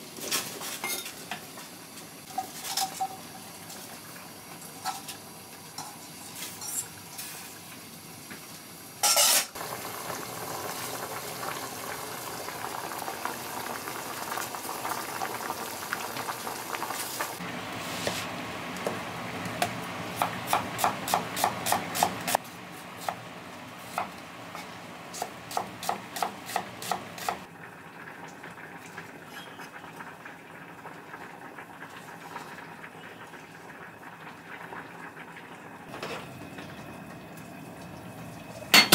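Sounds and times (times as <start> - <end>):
pot bubbling: 9.6 - 22.4, 23.8 - 38.9.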